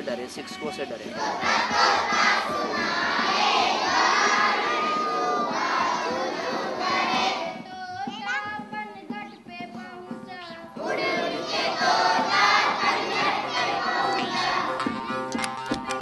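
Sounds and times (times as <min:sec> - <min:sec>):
children's voices calling out: 0:00.5 - 0:16.0
children singing: 0:00.7 - 0:08.7, 0:09.7 - 0:16.0.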